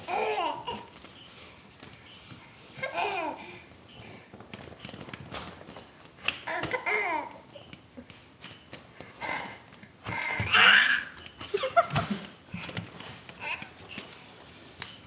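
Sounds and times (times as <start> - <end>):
baby laughing and babbling: 0.0 - 0.9, 2.8 - 3.6, 6.5 - 7.7, 13.4 - 13.8.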